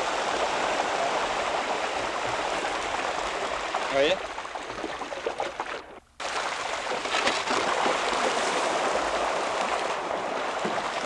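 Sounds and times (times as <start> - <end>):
water rushing and splashing: 0.0 - 11.0.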